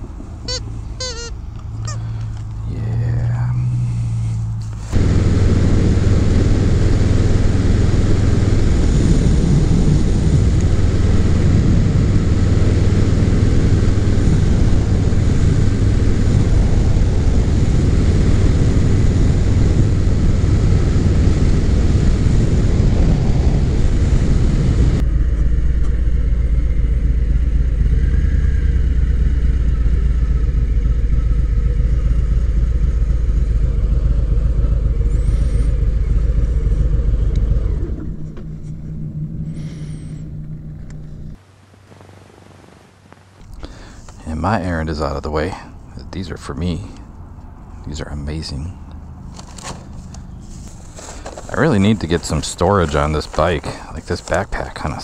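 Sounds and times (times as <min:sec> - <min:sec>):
motorcycle engine running: 0:00.5 - 0:41.4, 0:48.9 - 0:55.0
wind rush over microphone: 0:04.9 - 0:28.7
motorcycle engine idling: 0:25.0 - 0:41.4.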